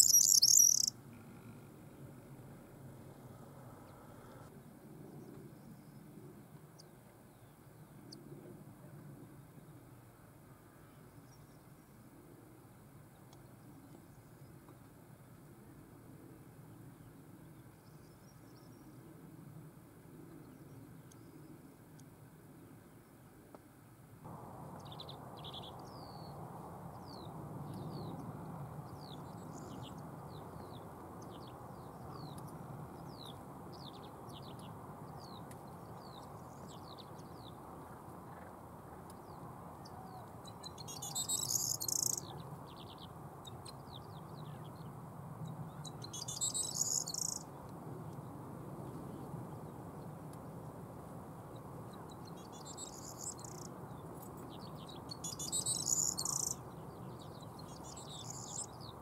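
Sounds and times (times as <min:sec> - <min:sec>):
bird jangling song: 0:00.0 - 0:00.9, 0:40.9 - 0:42.2, 0:46.2 - 0:47.4, 0:52.8 - 0:53.7, 0:55.2 - 0:56.6.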